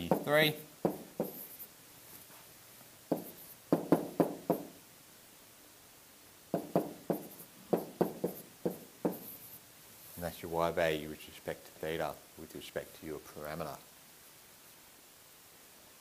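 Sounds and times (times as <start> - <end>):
pen tapping on whiteboard: 0.0 - 1.5, 3.1 - 4.8, 6.5 - 9.4.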